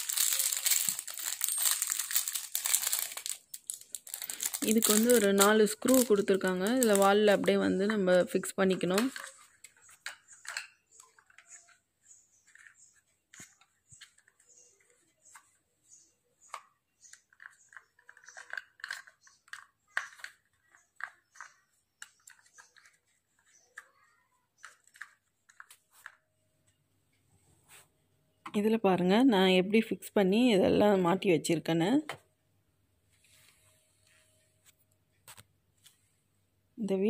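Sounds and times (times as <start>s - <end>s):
plastic clips clicking and rattling: 0.0s - 8.0s.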